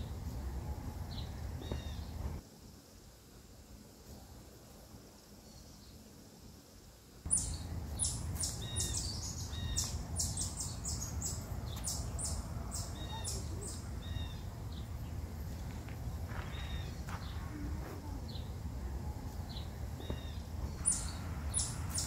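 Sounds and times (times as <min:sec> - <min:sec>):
low steady rumble: 0:00.0 - 0:02.4, 0:07.3 - 0:22.0
birds chirping and whistling: 0:01.1 - 0:02.2, 0:07.3 - 0:15.6, 0:19.5 - 0:22.0.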